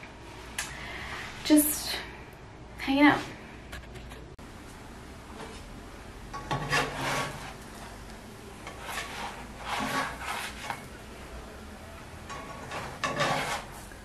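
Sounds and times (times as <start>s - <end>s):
plastic spatula scraping pan: 6.4s - 7.6s, 8.6s - 10.9s, 12.3s - 13.9s.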